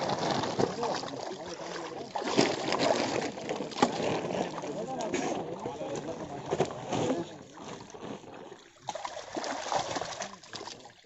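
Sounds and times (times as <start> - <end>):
water sloshing and splashing: 0.0 - 11.0
men talking: 0.5 - 7.5.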